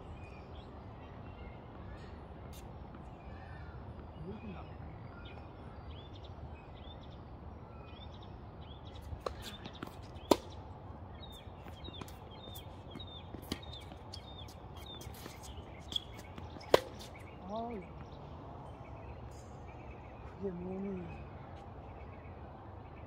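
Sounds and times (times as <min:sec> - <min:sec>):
birds chirping: 0:00.0 - 0:23.0
tennis ball bouncing: 0:09.0 - 0:17.4
tennis racket strikes: 0:16.6 - 0:17.1.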